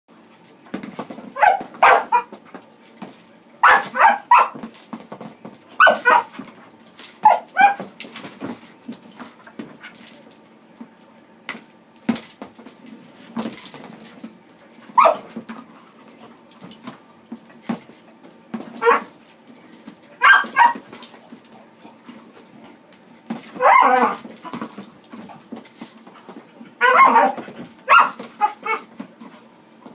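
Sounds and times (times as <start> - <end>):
paws in a rubber tub: 0.2 - 29.9
puppy yipping and barking: 1.4 - 2.3, 3.6 - 4.6, 15.0 - 15.2, 20.2 - 20.8, 23.6 - 24.2, 26.8 - 28.8.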